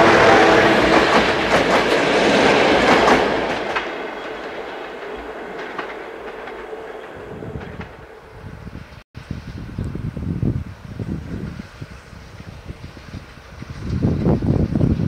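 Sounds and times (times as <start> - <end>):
train wheels clattering over rail joints: 0.0 - 8.1.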